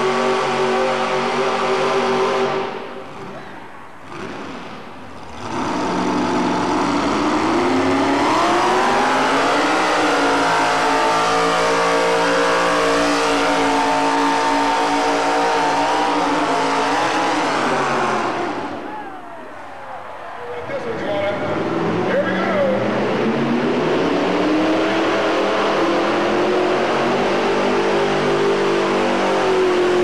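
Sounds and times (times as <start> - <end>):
truck engine at full throttle: 0.0 - 30.0.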